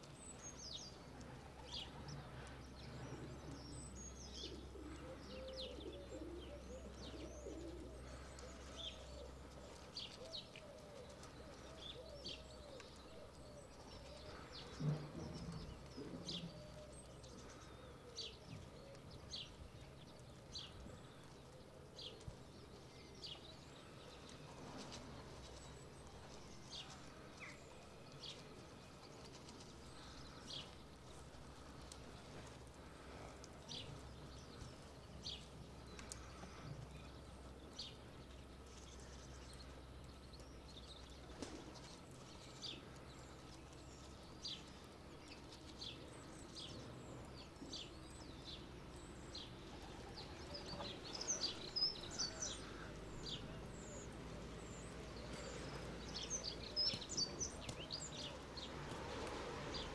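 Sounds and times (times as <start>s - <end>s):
bird chirping: 0.0s - 59.9s.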